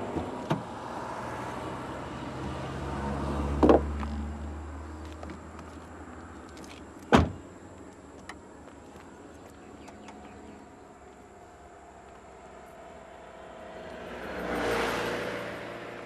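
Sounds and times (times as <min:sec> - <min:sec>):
faint background noise: 0:00.0 - 0:16.0
car door slamming: 0:07.1 - 0:07.4.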